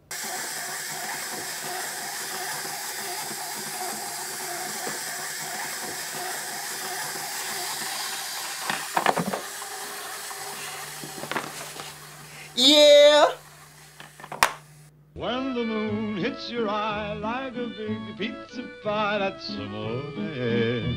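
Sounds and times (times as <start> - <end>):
steady hiss: 0.0 - 14.9.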